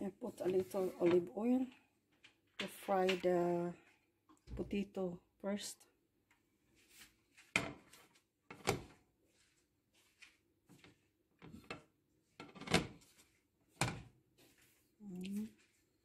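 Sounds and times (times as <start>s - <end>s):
knocks and clunks in kitchen: 7.4s - 9.2s, 13.7s - 14.4s.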